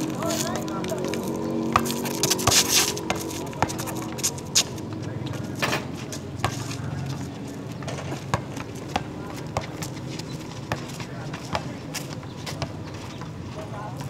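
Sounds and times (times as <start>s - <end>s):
footsteps scuffing: 0.0s - 13.3s
basketball bouncing on concrete: 1.7s - 4.7s, 7.8s - 10.0s, 10.6s - 11.8s.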